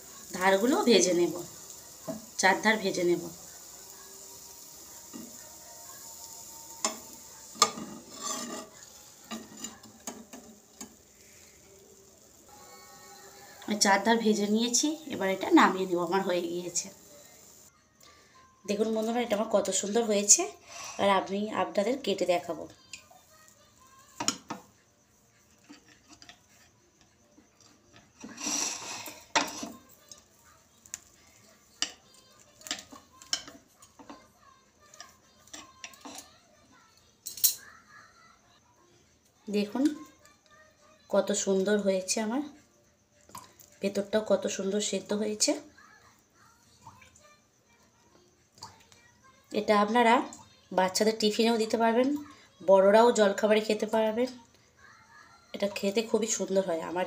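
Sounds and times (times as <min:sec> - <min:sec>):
bread sizzling in a frying pan: 0:00.0 - 0:17.8, 0:18.7 - 0:38.6
utensils tapping and scraping pan: 0:04.4 - 0:05.4, 0:06.5 - 0:11.6, 0:24.1 - 0:24.7, 0:25.5 - 0:26.8, 0:27.6 - 0:30.3, 0:31.7 - 0:34.3, 0:34.9 - 0:36.3
knife scraping plate: 0:07.6 - 0:10.2, 0:28.2 - 0:29.8.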